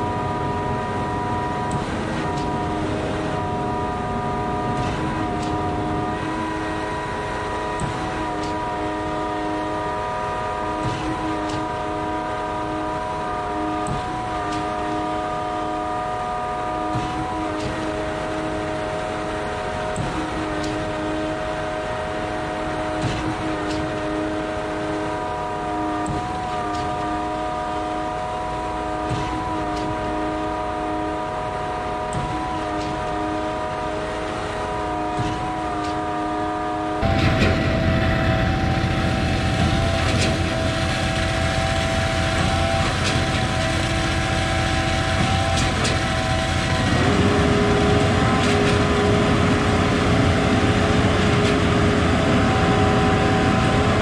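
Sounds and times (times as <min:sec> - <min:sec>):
truck engine drone with whine: 0:00.0 - 0:54.0.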